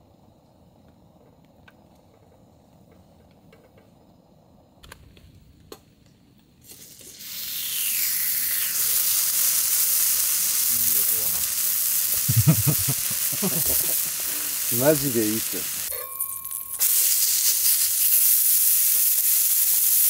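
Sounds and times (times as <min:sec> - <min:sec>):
food sizzling in a hot pan: 0:06.6 - 0:20.0.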